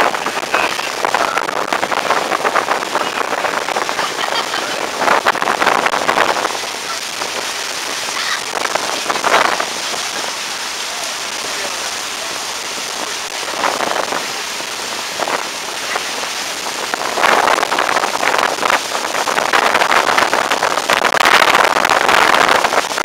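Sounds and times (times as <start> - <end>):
water washing past hull: 0.0 - 23.0
wind: 0.0 - 23.0.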